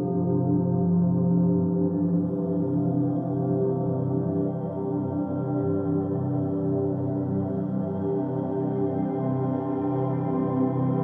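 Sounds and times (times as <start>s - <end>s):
slow ambient music: 0.0s - 11.0s.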